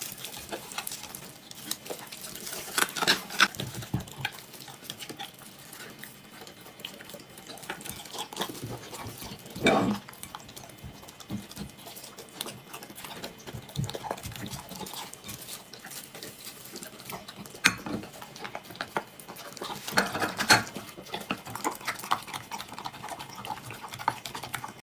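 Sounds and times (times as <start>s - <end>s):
dog chewing and smacking: 0.0s - 24.8s
dog lapping liquid: 0.0s - 24.8s.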